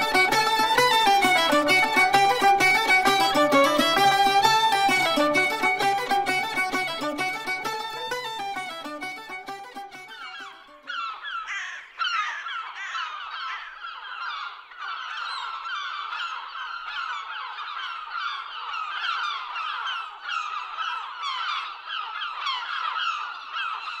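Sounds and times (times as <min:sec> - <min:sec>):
flock of birds calling: 0:09.7 - 0:24.0.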